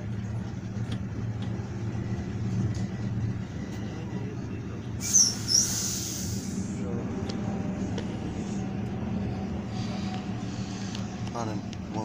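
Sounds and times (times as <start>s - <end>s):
bus engine and road rumble: 0.0s - 12.0s.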